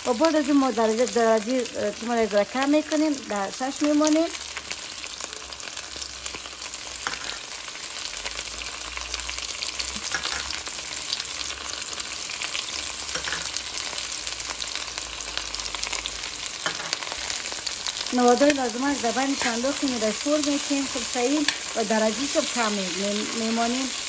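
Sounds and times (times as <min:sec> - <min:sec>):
okra sizzling in hot oil: 0:00.0 - 0:24.0
metal spoon clinking pot: 0:13.1 - 0:13.5.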